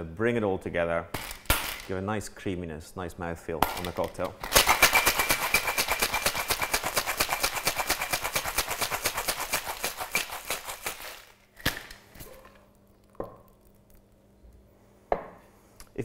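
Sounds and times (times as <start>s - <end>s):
ice rattling in metal shaker: 3.8s - 11.4s.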